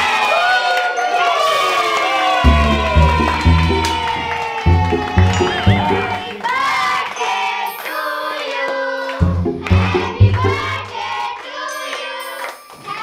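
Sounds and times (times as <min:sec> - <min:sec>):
music with steady beat: 0:02.4 - 0:06.6, 0:09.2 - 0:11.2
group of voices singing: 0:05.2 - 0:12.2.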